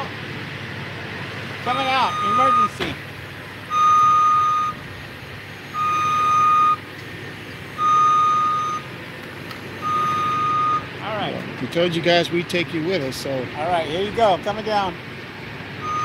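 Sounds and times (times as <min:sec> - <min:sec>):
motion alarm beeping: 0:01.7 - 0:02.8, 0:03.7 - 0:04.8, 0:05.7 - 0:06.8, 0:07.8 - 0:08.9, 0:09.8 - 0:10.9.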